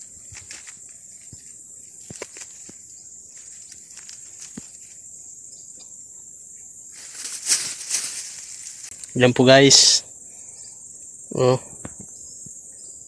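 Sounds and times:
dry leaves crackling: 0:00.0 - 0:05.0, 0:06.9 - 0:09.2
insect chorus: 0:00.0 - 0:13.0.

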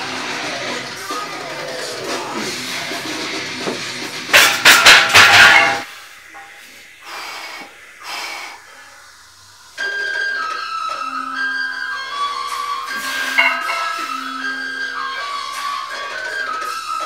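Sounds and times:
music: 0:00.0 - 0:05.9, 0:09.0 - 0:17.0
person breathing hard: 0:07.0 - 0:09.1.

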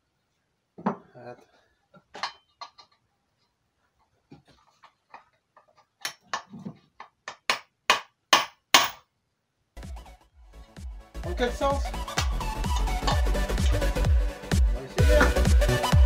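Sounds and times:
hammer striking metal pipe: 0:07.3 - 0:09.0.

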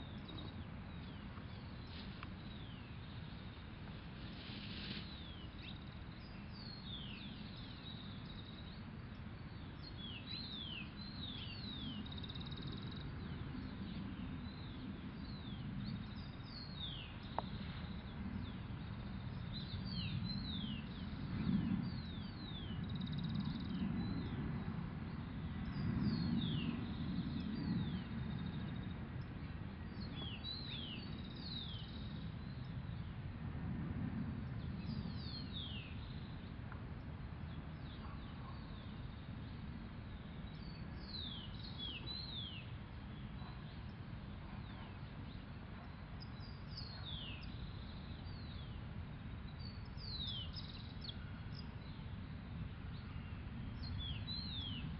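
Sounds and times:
small birds chirping: 0:34.4 - 0:54.9.

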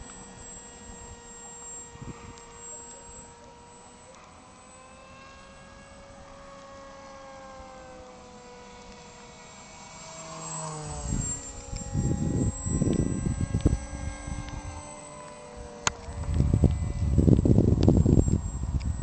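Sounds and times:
model airplane motor whine: 0:00.0 - 0:19.0
rumbling noise on microphone: 0:11.0 - 0:14.9, 0:15.6 - 0:19.0.

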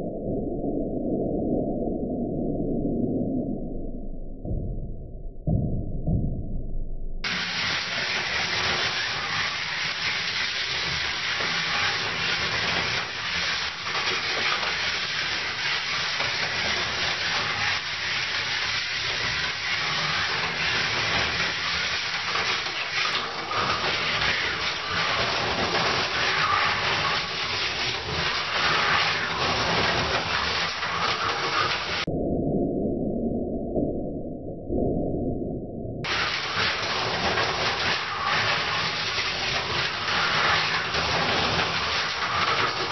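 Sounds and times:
slot car motor whirring: 0:07.2 - 0:32.1.

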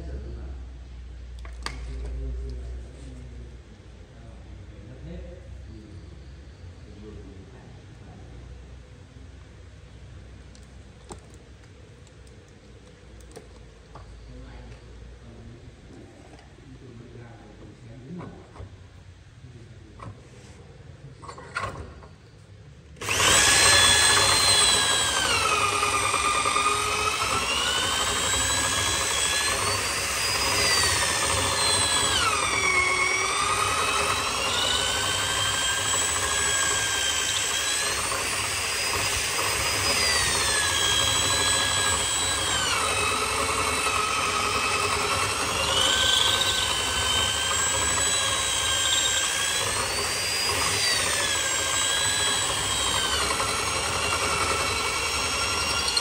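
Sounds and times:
electric drill boring into wood: 0:23.0 - 0:56.0.

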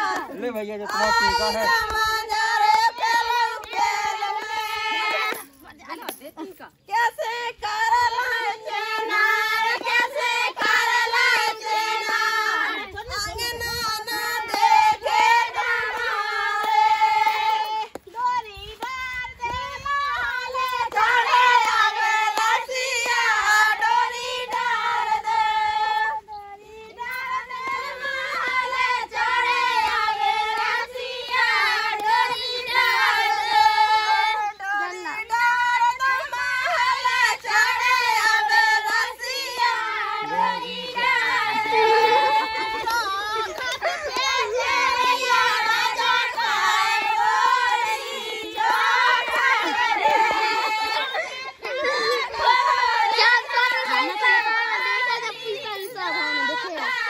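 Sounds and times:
hand claps: 0:00.0 - 0:06.4, 0:14.2 - 0:20.0, 0:20.6 - 0:24.9, 0:29.8 - 0:33.6, 0:40.2 - 0:46.2
women singing folk song: 0:01.0 - 0:05.6, 0:06.4 - 0:57.0.

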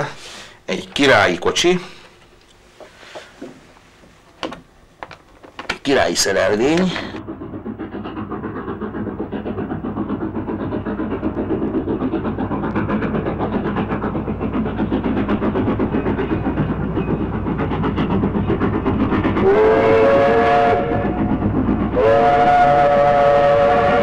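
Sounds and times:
steam train clattering: 0:00.0 - 0:24.0
steam whistle blasts: 0:19.4 - 0:21.2, 0:21.9 - 0:24.0.

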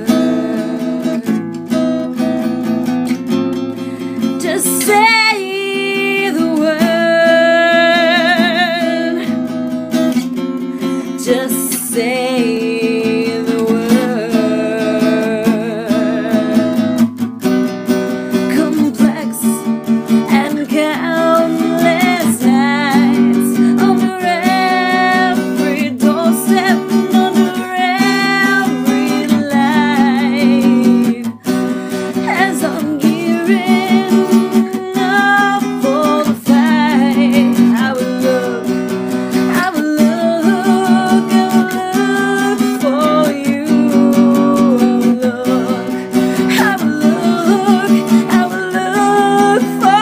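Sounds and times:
woman singing with vibrato: 0:00.0 - 0:02.8, 0:03.8 - 0:17.1, 0:18.3 - 0:50.0
strummed acoustic guitar: 0:00.0 - 0:50.0.

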